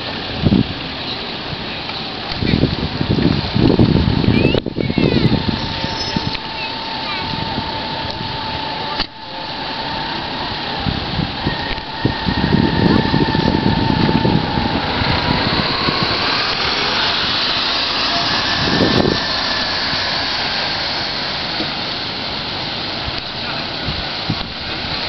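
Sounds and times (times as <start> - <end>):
low rumbling wind gusts: 0.0 - 25.0
steady outdoor noise: 0.0 - 25.0
car with trailer driving past: 5.3 - 23.6.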